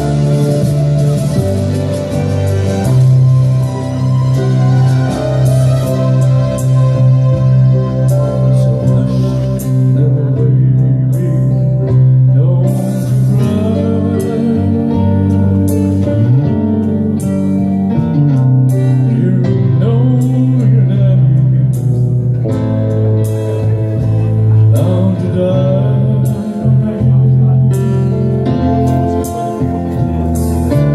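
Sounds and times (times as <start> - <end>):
amplified backing music: 0.0 - 30.9
steady bass line: 0.0 - 30.9
man singing into a microphone: 7.2 - 17.8, 18.7 - 22.3, 23.3 - 30.9.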